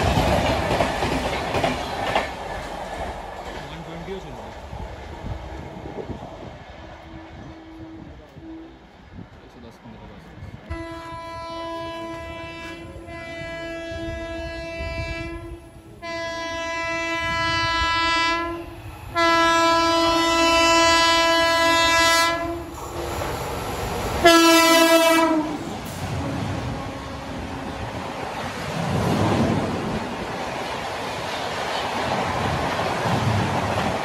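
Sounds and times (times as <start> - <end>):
train coaches rushing past: 0.0 - 34.0
locomotive horn blasts: 6.8 - 9.0, 10.7 - 22.8, 24.2 - 27.8.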